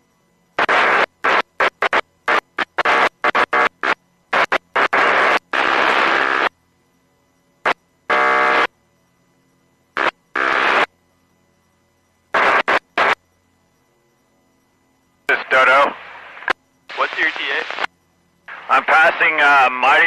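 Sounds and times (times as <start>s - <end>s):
radio static bursts: 0.6s - 6.5s, 7.6s - 8.7s, 10.0s - 10.9s, 12.3s - 13.2s, 15.3s - 17.9s, 18.5s - 20.0s.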